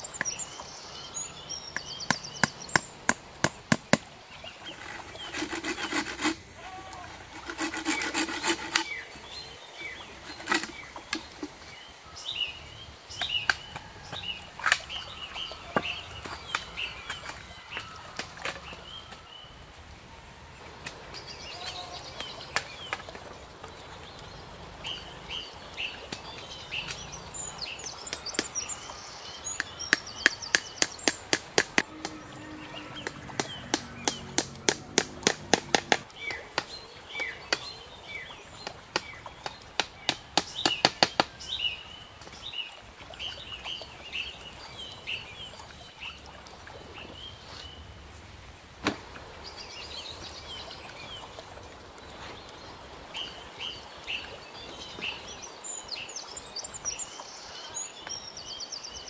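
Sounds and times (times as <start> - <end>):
small birds chirping: 0.0 - 17.4
tool knocking on bamboo: 2.1 - 4.1, 10.3 - 11.6, 33.0 - 36.0.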